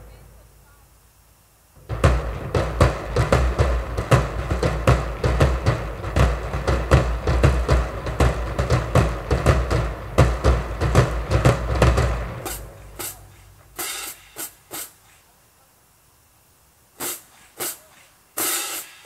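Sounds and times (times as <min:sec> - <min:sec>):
marching drumline cadence: 0:01.7 - 0:15.4, 0:16.3 - 0:19.0
sharp high drum hits: 0:01.8 - 0:15.0, 0:17.0 - 0:19.0.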